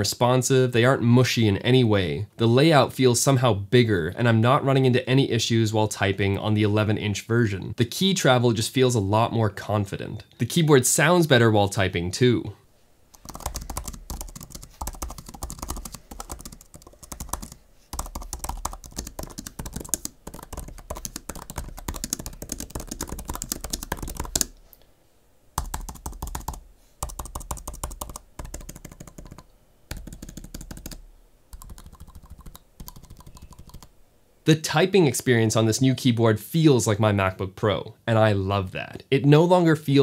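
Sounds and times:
fast keyboard typing: 0:13.1 - 0:24.5, 0:25.6 - 0:33.9.

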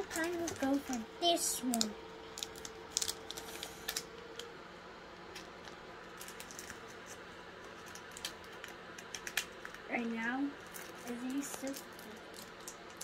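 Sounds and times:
foil wrapper crinkling: 0:01.6 - 0:04.5, 0:05.3 - 0:09.9, 0:10.6 - 0:13.0.

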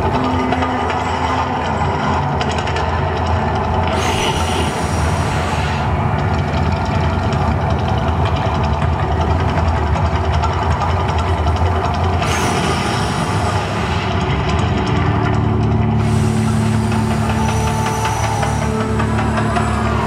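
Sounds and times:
volcano attraction rumble: 0:00.0 - 0:20.0
hiss: 0:03.9 - 0:06.1, 0:12.2 - 0:14.3, 0:16.0 - 0:19.7.

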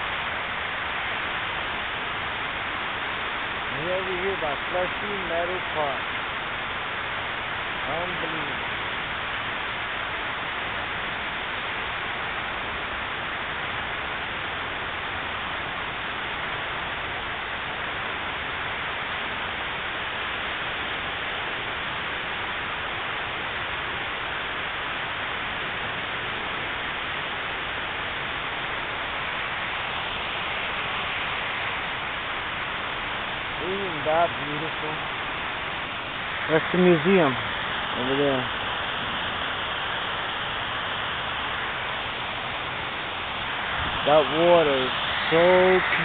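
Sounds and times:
fountain water splashing: 0:00.0 - 0:46.0.

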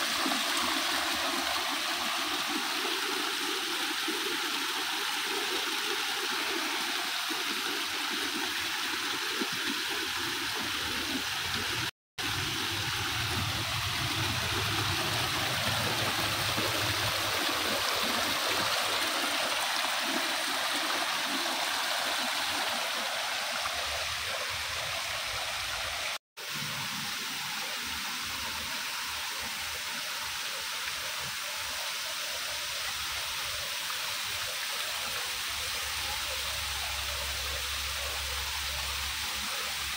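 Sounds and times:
waterfall splashing over stones: 0:00.0 - 0:39.9.

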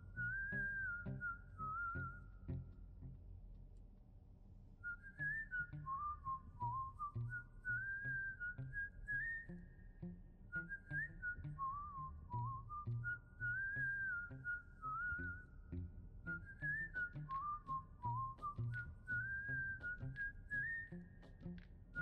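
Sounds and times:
whistled tune: 0:00.0 - 0:02.7, 0:04.8 - 0:22.0
light steady beat: 0:17.1 - 0:22.0.

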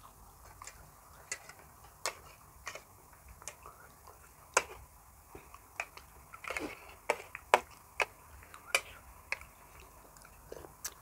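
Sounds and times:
chewing clicks and smacks: 0:05.5 - 0:11.0.

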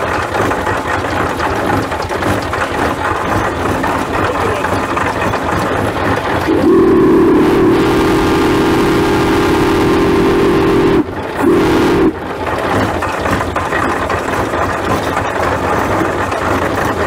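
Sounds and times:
steam engine running: 0:00.0 - 0:17.0
steam whistle blasts: 0:06.5 - 0:12.2.

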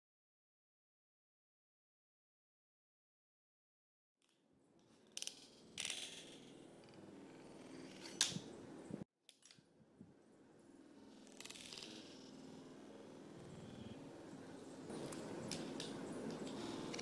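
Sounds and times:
fingerboard wheels rolling on table: 0:05.0 - 0:08.5, 0:11.1 - 0:14.1.

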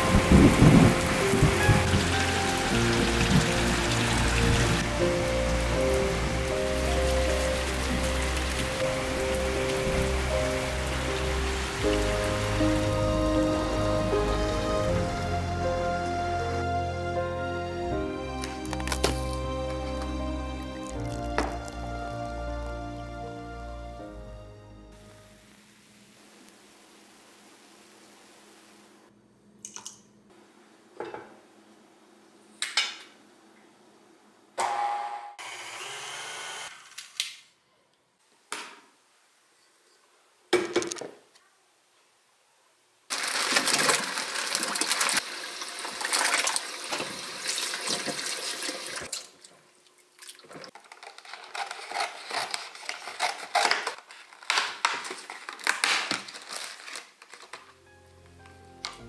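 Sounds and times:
tap water running into basket: 0:00.0 - 0:13.0, 0:20.7 - 0:21.8, 0:43.1 - 0:49.4.

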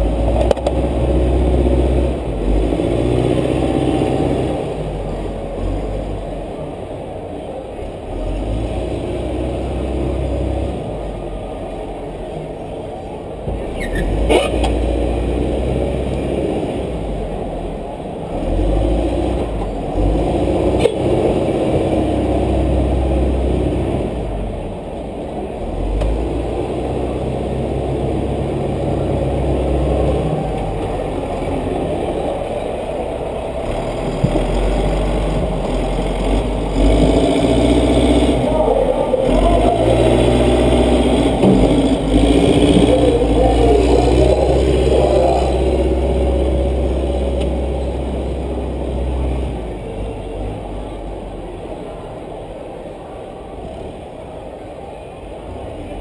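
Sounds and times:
race car engine rumbling: 0:00.0 - 0:56.0.

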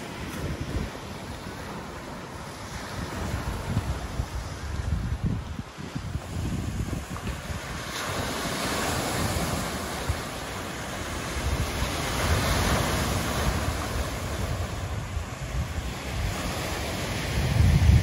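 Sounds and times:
wind buffeting microphone: 0:00.0 - 0:18.0
waves breaking on boulders: 0:06.0 - 0:18.0.

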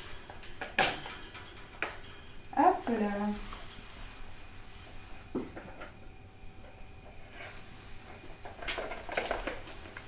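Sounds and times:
plastic rustling and clattering: 0:07.2 - 0:10.0.

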